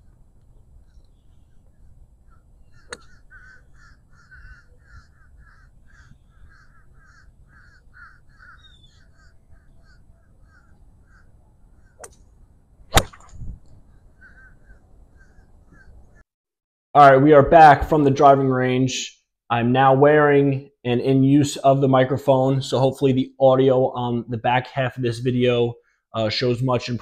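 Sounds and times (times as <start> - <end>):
bird harsh caw-like calls: 2.2 - 12.1, 13.9 - 16.2
golf iron striking ball: 2.7 - 3.2, 11.9 - 12.3, 12.9 - 13.6.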